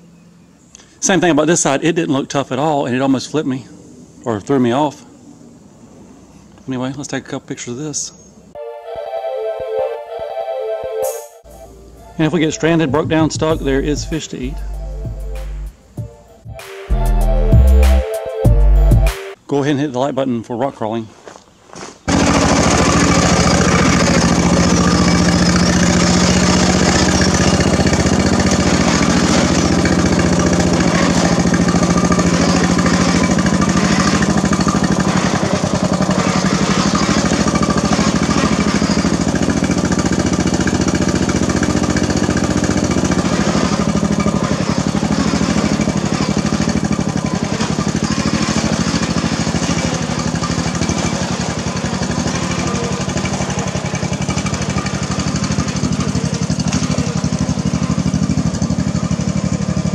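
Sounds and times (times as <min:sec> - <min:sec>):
riding mower engine running: 0:11.4 - 0:19.4, 0:21.7 - 0:59.9.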